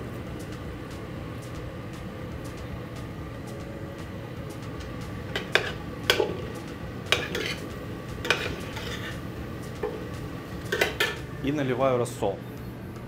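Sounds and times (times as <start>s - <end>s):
steady low hum: 0.0s - 13.0s
ladle stirring in pot: 5.3s - 10.1s.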